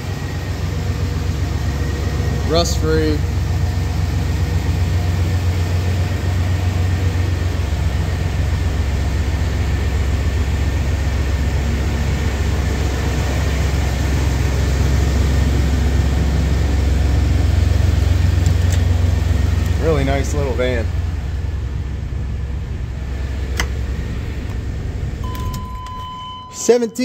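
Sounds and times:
engine idling: 0.0s - 27.0s.

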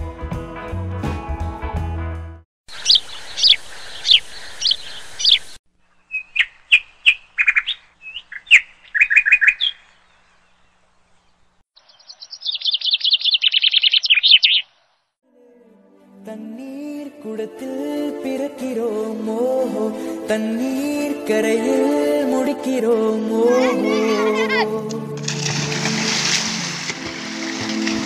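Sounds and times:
bird trilling: 2.7s - 10.8s, 11.8s - 15.0s
birds chirping: 2.7s - 15.2s.

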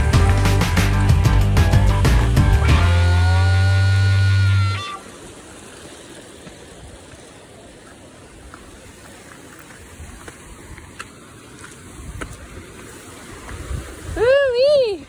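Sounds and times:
river water rushing: 0.0s - 15.0s
footsteps on dirt trail: 6.0s - 14.3s.

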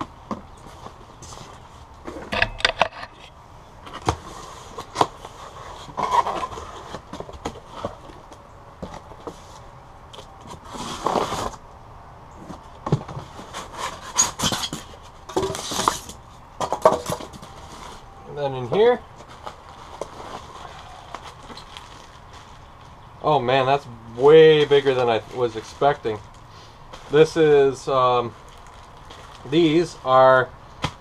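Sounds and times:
styrofoam scraping and rustling: 3.9s - 8.2s, 9.2s - 11.6s, 12.9s - 16.2s, 18.8s - 23.0s
cardboard box being unpacked: 10.2s - 11.6s, 19.2s - 22.6s.

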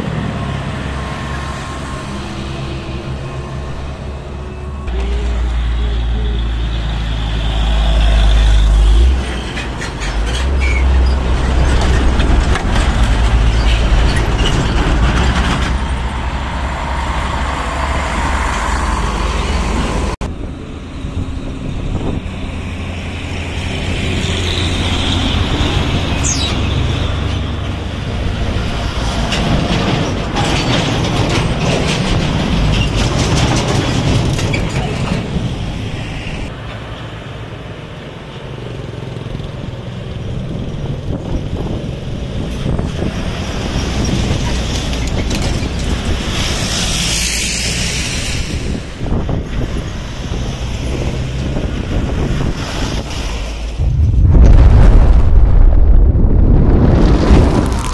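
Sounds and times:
diesel trucks climbing: 0.0s - 57.9s
traffic tyre noise: 0.0s - 57.9s.

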